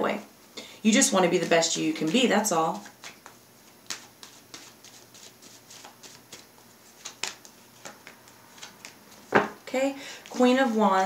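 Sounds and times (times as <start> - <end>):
cards clicking and flicking: 2.8 - 9.3.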